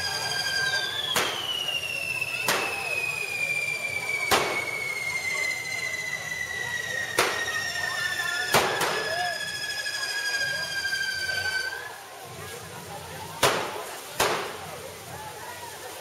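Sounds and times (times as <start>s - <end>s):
firecracker bangs: 0.0s - 9.6s, 13.3s - 14.8s
falling firework whistle: 0.0s - 12.0s.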